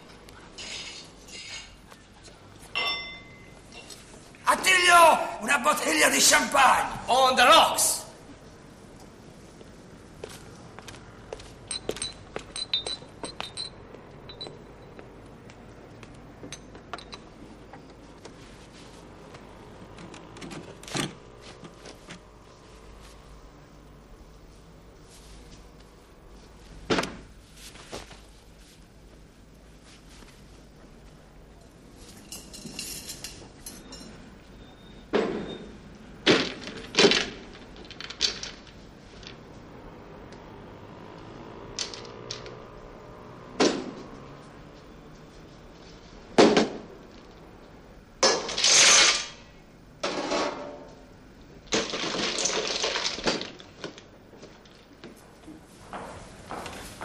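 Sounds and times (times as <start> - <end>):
bottle and glassware clinking: 2.7 - 3.9
tableware clinking: 2.7 - 4.0, 11.7 - 15.0, 32.1 - 34.3.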